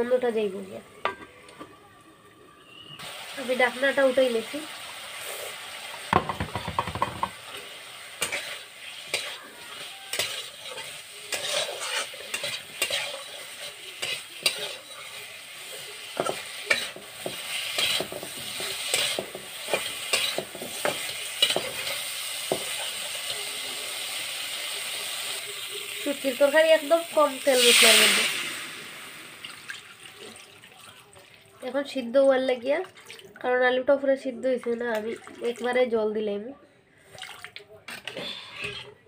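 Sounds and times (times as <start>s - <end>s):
potatoes sizzling in oil: 3.0s - 30.2s
spatula scraping a pan: 8.2s - 23.0s, 37.9s - 39.0s.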